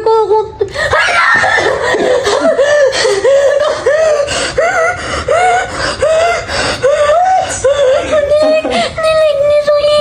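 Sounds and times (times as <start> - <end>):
woman breathing: 2.2 - 9.0.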